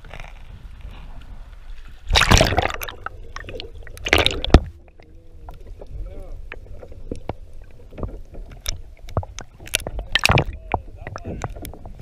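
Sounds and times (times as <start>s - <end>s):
small clicks underwater: 0.0s - 0.6s, 1.2s - 12.0s
water splashing: 1.7s - 12.0s
muffled underwater sound: 2.2s - 12.0s.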